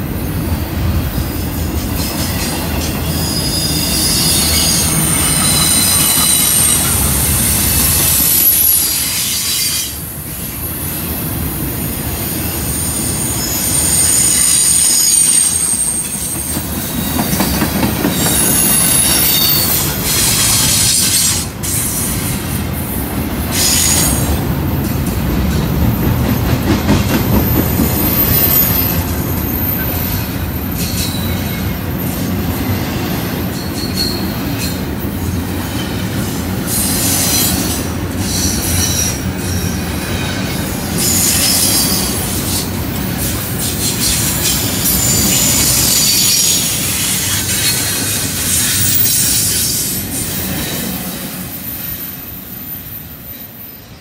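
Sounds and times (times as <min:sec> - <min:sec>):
freight train rumbling: 0:00.0 - 0:54.0
high-pitched wheel squeal: 0:02.2 - 0:10.0, 0:12.3 - 0:22.1, 0:27.8 - 0:34.8, 0:36.7 - 0:50.4.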